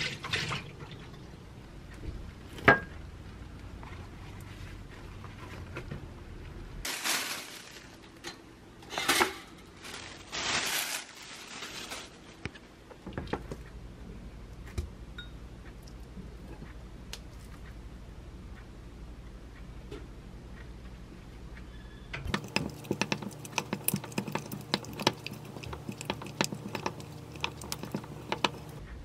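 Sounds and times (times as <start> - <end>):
crisp rustling of packaging: 6.8 - 8.2, 9.5 - 12.7.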